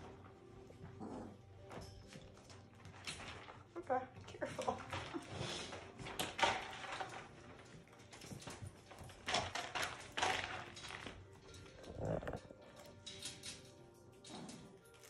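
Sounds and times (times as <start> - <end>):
puppies scuffling: 0.0 - 15.0.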